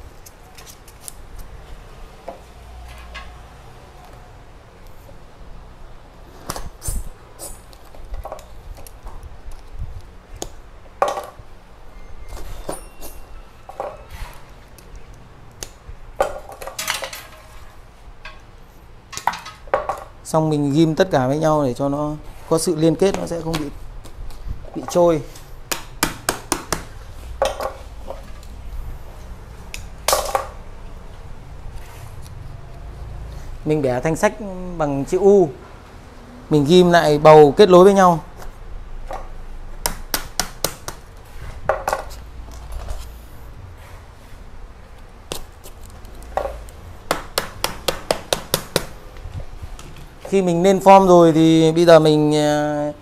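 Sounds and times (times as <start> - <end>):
soft metal clinks: 12.0 - 14.1.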